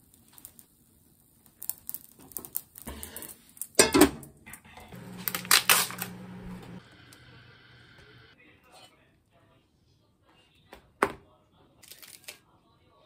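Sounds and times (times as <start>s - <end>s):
low steady hum: 4.9s - 8.4s
plastic packaging crinkling: 5.0s - 6.4s, 11.8s - 12.4s.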